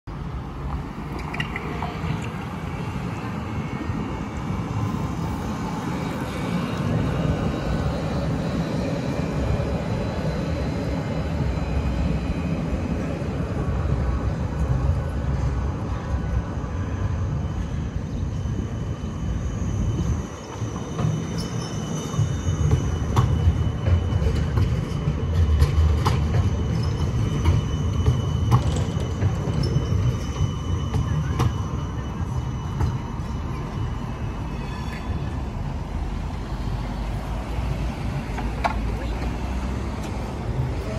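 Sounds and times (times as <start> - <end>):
electric trams rolling past: 0.1 - 40.9
wheels clicking on track: 20.4 - 34.2.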